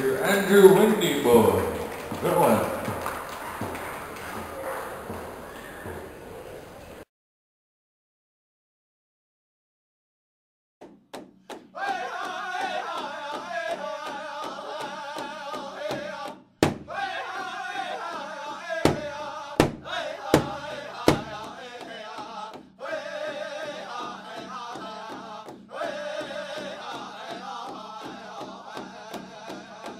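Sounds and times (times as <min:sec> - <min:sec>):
person chanting: 0:00.0 - 0:06.1.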